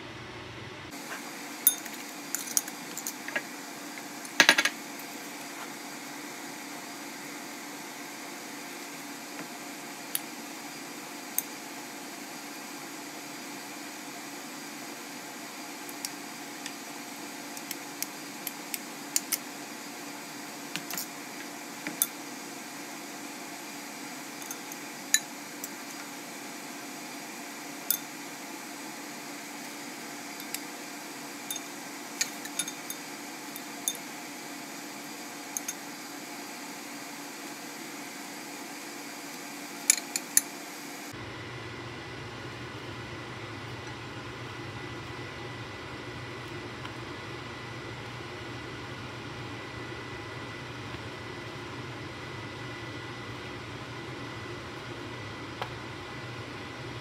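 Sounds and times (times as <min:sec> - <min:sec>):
spoon and fork clinking on bowls: 0:01.7 - 0:03.2, 0:31.5 - 0:33.0
utensils clattering: 0:32.2 - 0:33.0.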